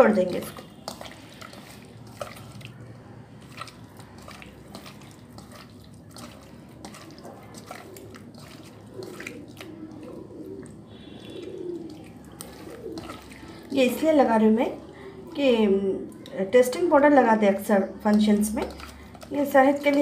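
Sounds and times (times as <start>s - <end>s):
hand mixing raw chicken: 0.0s - 20.0s.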